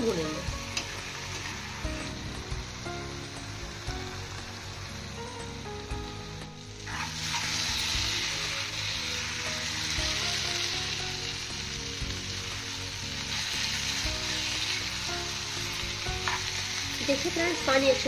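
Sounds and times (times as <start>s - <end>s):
mushrooms sizzling in a pan: 0.0s - 18.0s
soft background music: 0.0s - 18.0s.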